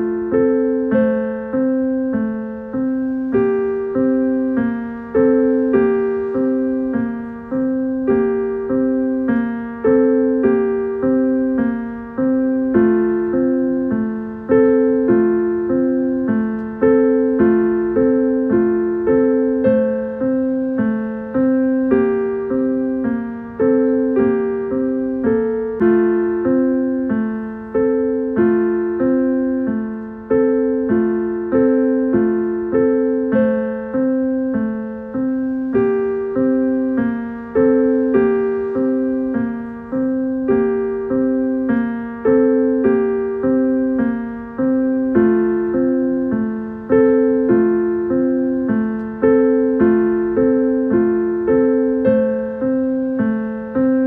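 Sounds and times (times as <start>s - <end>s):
gentle piano music: 0.0s - 54.0s.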